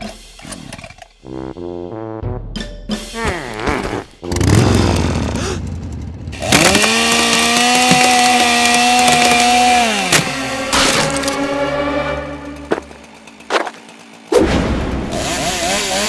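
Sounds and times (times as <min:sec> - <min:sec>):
chainsaw revving: 0:04.2 - 0:16.0.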